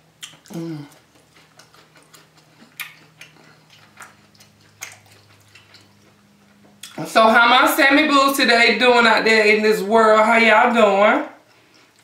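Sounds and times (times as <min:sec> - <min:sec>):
wet mouth clicks while chewing: 0:00.2 - 0:07.0
person humming: 0:00.5 - 0:01.0.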